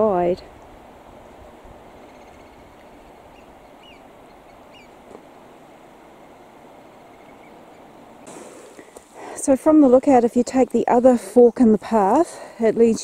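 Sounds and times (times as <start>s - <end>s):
outdoor background hiss: 0.0s - 13.0s
faint bird chirps: 2.0s - 5.0s, 6.2s - 7.9s.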